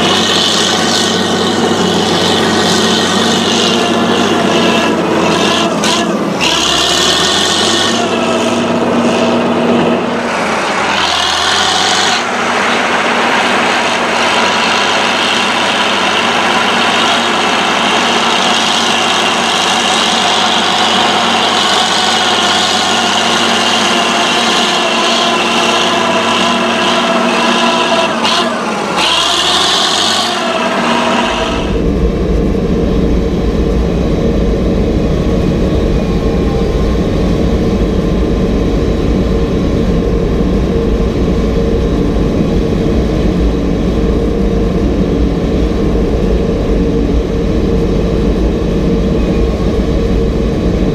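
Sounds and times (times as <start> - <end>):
harsh high-pitched scraping: 0.0 - 32.2
dozer diesel engine at full power: 0.0 - 50.9.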